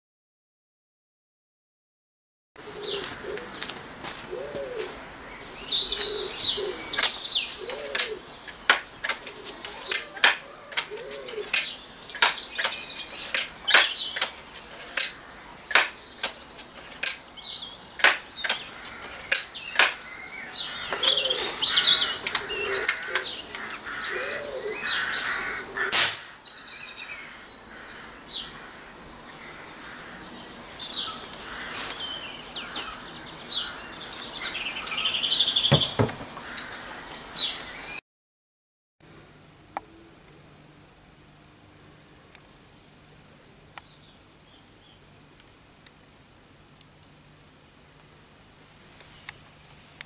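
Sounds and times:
birds chirping: 2.6 - 38.0, 41.8 - 45.2
air rifle shot crack: 25.9 - 26.4.

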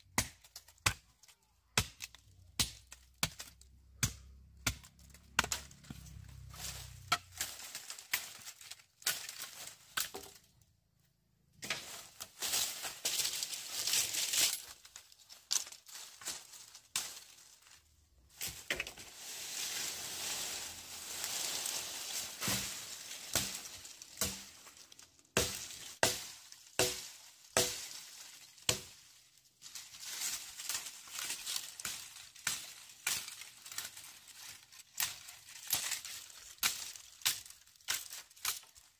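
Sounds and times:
sharp knocks and cracks: 0.0 - 10.5, 11.6 - 17.7, 22.4 - 38.9
rustling: 11.6 - 38.9.

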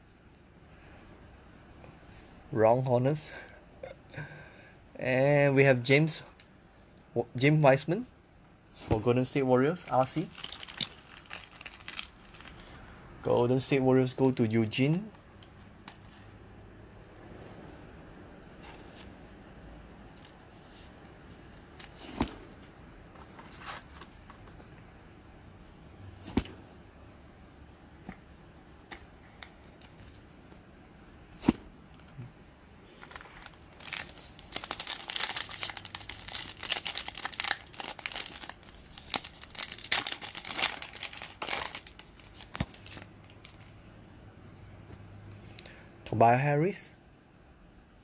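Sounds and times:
foil wrapper tearing and crinkling: 9.9 - 12.8, 33.0 - 43.6.

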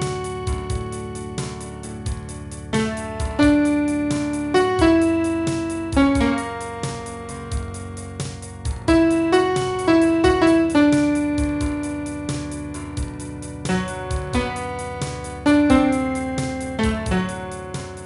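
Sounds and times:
bass line: 0.0 - 18.0
light steady beat: 0.0 - 18.0
slow piano melody: 0.0 - 18.0.

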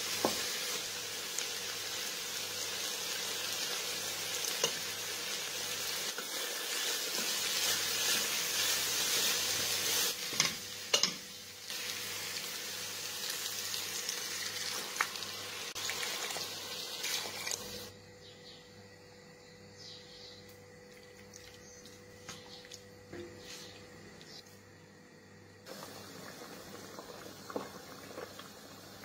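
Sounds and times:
vegetables sizzling in a pot: 0.0 - 17.9, 25.6 - 29.0.

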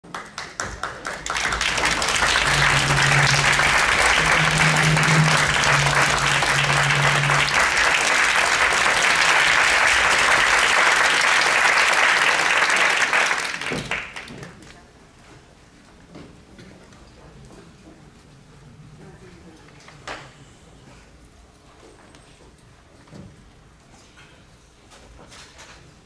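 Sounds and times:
audience applauding: 0.1 - 14.6.

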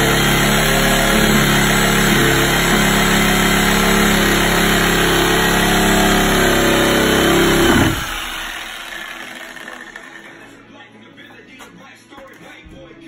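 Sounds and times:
reciprocating saw cutting wood: 0.0 - 10.4.

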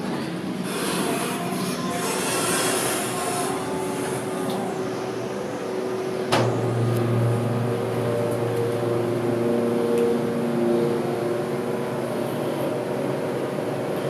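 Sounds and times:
hydraulic pump motor humming: 0.7 - 11.0
elevator clunk: 6.3 - 8.9.

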